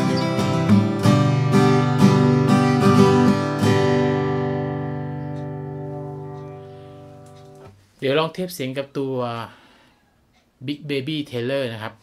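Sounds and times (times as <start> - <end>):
acoustic guitar strummed: 0.0 - 7.7.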